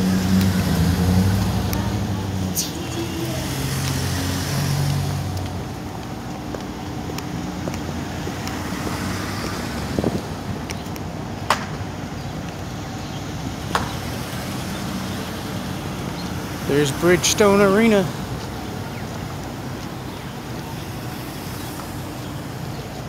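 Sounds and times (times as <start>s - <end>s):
traffic hiss: 0.0s - 5.3s
vehicles passing: 0.0s - 23.0s.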